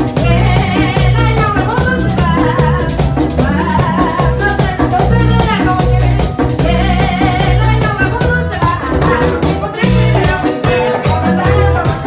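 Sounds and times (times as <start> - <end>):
bass line: 0.0 - 12.0
button accordion melody: 0.0 - 12.0
drums: 0.0 - 12.0
person singing: 0.0 - 12.0.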